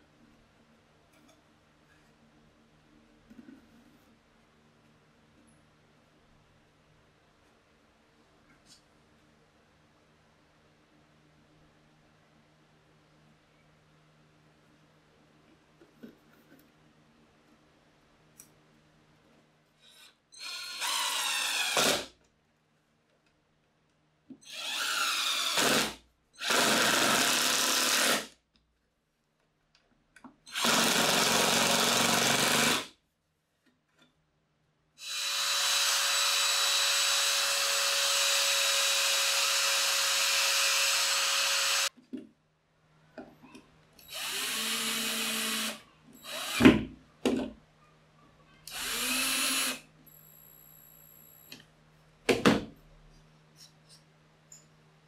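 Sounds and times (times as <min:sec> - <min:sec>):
cordless drill driving screws: 0:20.4 - 0:22.1, 0:24.4 - 0:28.3, 0:30.5 - 0:32.9, 0:35.0 - 0:41.9, 0:44.1 - 0:46.7, 0:48.7 - 0:49.8.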